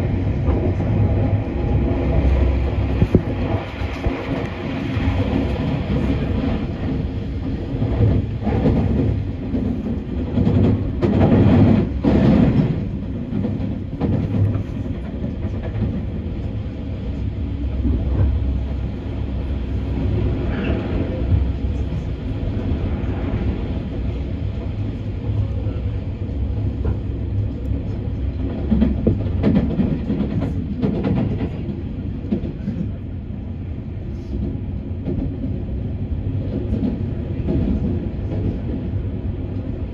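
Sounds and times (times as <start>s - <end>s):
train rumbling on track: 0.0s - 39.9s
train wheels clacking: 0.4s - 18.5s, 23.9s - 33.0s.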